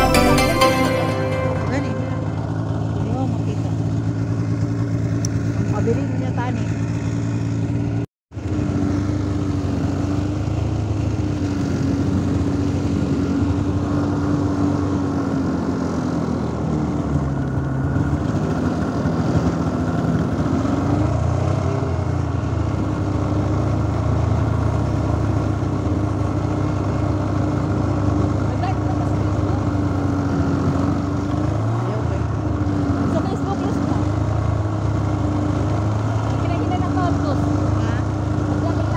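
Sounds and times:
snowmobile engine running: 8.5s - 38.9s.

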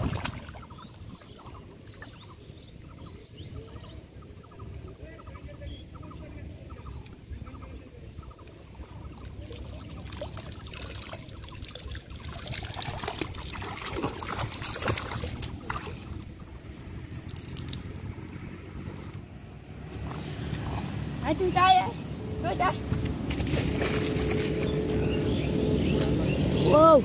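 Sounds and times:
water splashing and trickling: 0.0s - 2.6s, 8.4s - 27.0s.

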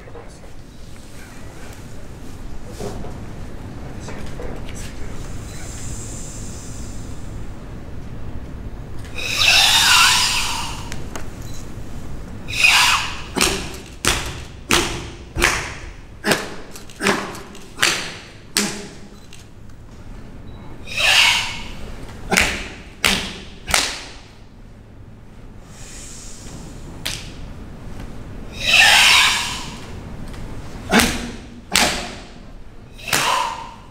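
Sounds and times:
forceful hissing exhalations: 5.6s - 7.2s, 25.6s - 26.8s
open-hand slaps on bare skin: 22.4s - 24.2s.

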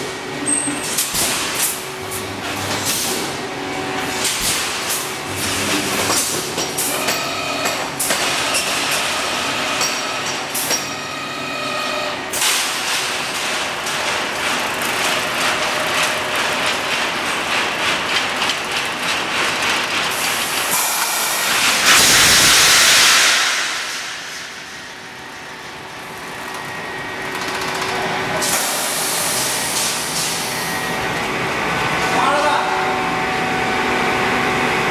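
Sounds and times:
welding machine metallic clattering: 12.3s - 28.0s
loud hiss: 20.8s - 24.4s.

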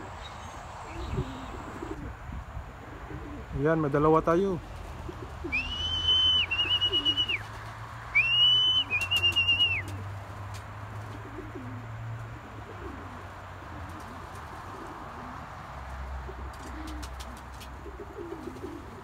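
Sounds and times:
pigeons cooing: 0.8s - 3.6s, 4.7s - 10.2s, 10.9s - 19.0s
high warbling whistle: 5.5s - 7.4s, 8.2s - 9.9s.

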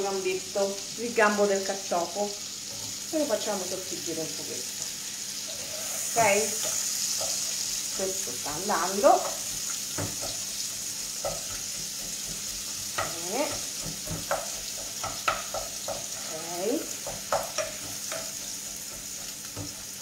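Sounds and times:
oil sizzling in pots: 0.0s - 20.0s
utensil tapping and scraping pot: 4.8s - 20.0s.

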